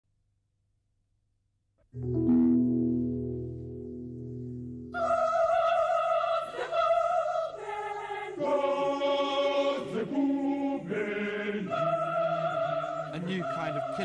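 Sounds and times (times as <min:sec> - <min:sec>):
choir singing long held notes: 0:04.9 - 0:14.0.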